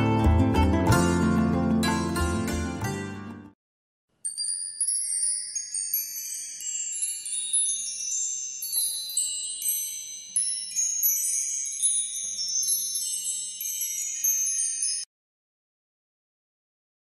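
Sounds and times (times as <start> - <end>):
chimes ringing: 4.2 - 15.1.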